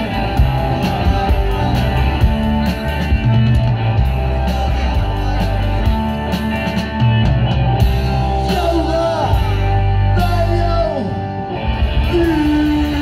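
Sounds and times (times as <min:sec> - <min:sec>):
drum beat: 0:00.0 - 0:08.8
bass guitar: 0:00.0 - 0:13.0
electric guitar: 0:00.0 - 0:13.0
man singing into a microphone: 0:08.4 - 0:11.2, 0:12.0 - 0:13.0.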